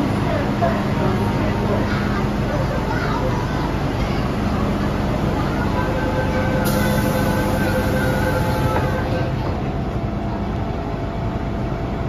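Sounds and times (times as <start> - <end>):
train humming: 0.0 - 12.0
door-closing warning tone: 5.6 - 9.6.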